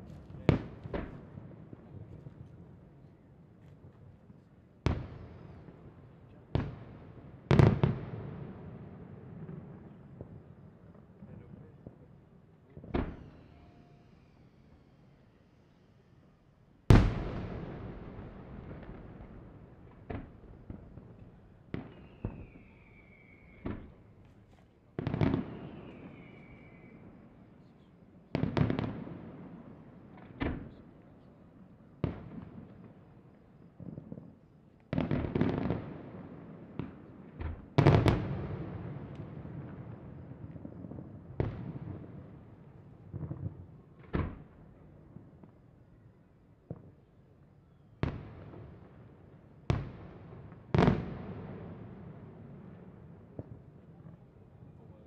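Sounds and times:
firework bangs with echo: 0:16.9 - 0:22.7, 0:34.9 - 0:42.4, 0:49.7 - 0:54.2.

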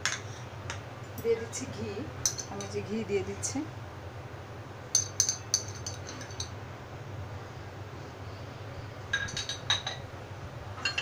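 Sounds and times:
spoon clinking against container: 0:05.0 - 0:06.5.

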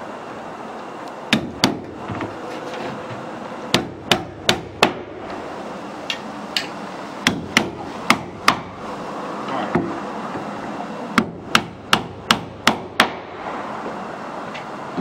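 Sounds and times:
hammer striking nails: 0:01.3 - 0:02.0, 0:03.7 - 0:05.1, 0:06.6 - 0:08.7, 0:11.2 - 0:13.3.

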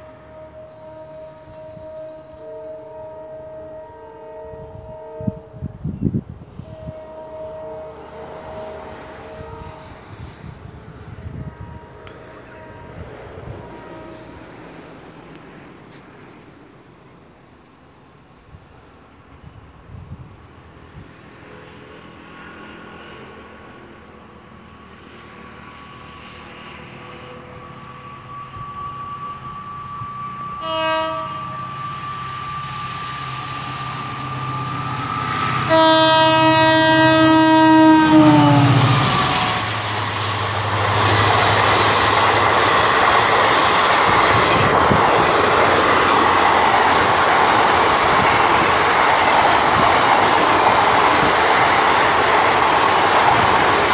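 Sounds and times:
train horn: 0:00.0 - 0:14.8, 0:25.3 - 0:42.9
diesel locomotive engine drone: 0:00.0 - 0:53.9
train wheels rushing on rails: 0:08.2 - 0:53.9.

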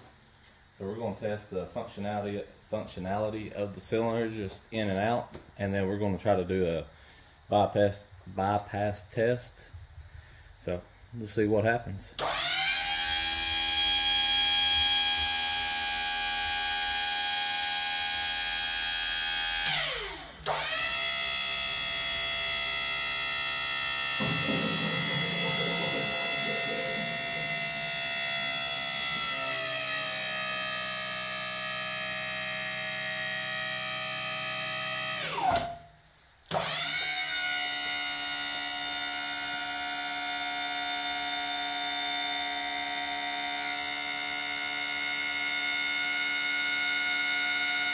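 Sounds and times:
hydraulic pump motor whining: 0:12.2 - 0:35.8, 0:36.5 - 0:47.9.

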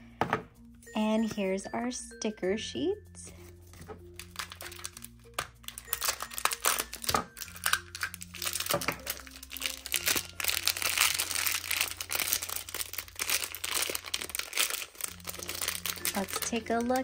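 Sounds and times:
plastic packaging crinkling and tearing: 0:03.9 - 0:17.0.

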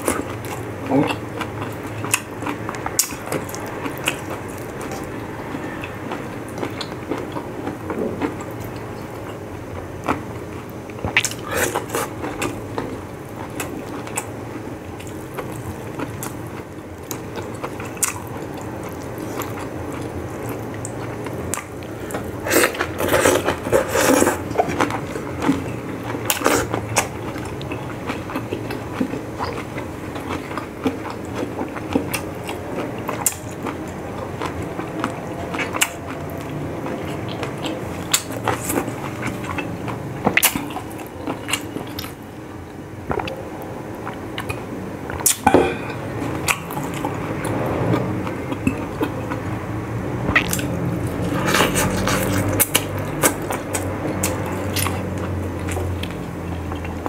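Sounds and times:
chewing and wet mouth noises: 0:00.0 - 0:57.0.

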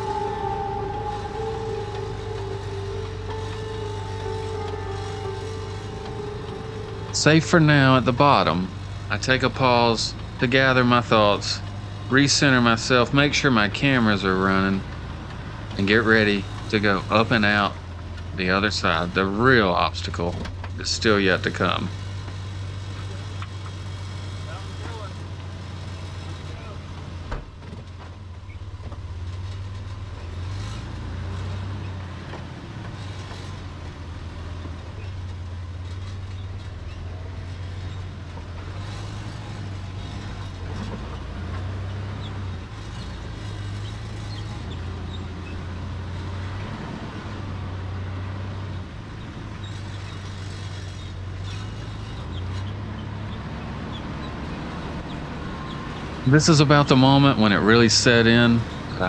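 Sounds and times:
truck engine droning at low revs: 0:00.0 - 0:59.0.

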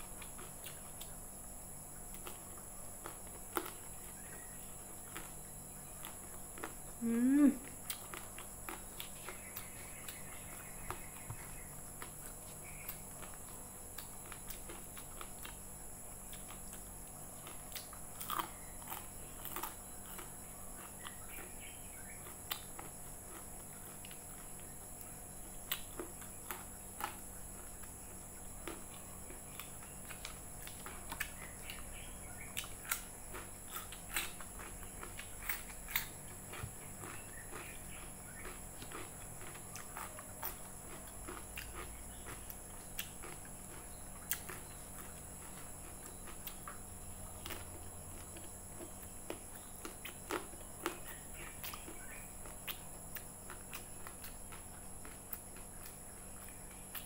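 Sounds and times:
person chewing: 0:00.0 - 0:01.2, 0:02.0 - 0:57.0
background hum: 0:00.0 - 0:57.0
biting into cucumber: 0:28.6 - 0:57.0.

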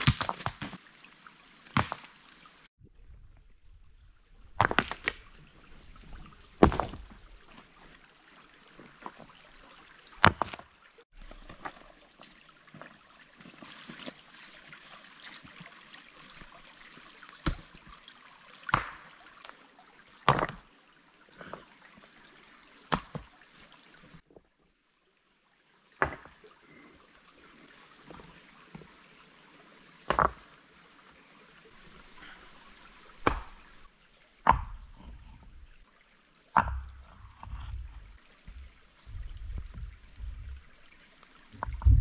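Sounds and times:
stones knocking and thudding: 0:00.0 - 0:00.8, 0:01.7 - 0:02.1, 0:04.4 - 0:05.4, 0:06.0 - 0:07.2, 0:10.2 - 0:11.9, 0:18.7 - 0:19.2, 0:20.2 - 0:20.7, 0:22.9 - 0:23.3, 0:26.0 - 0:26.4, 0:30.0 - 0:30.5, 0:33.1 - 0:33.8, 0:34.4 - 0:35.6, 0:36.5 - 0:40.8, 0:41.5 - 0:42.0
shallow stream trickling: 0:00.0 - 0:42.0.

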